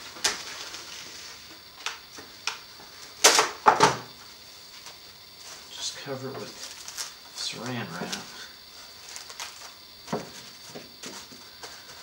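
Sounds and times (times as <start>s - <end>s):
cling wrap crinkling: 6.5s - 9.8s.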